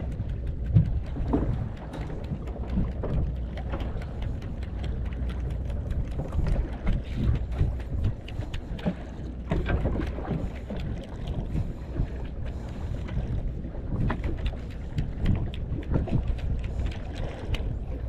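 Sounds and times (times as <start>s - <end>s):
knocks and splashes: 0.0s - 18.0s
water lapping against boat hull: 0.0s - 18.0s
wind buffeting microphone: 0.0s - 18.0s.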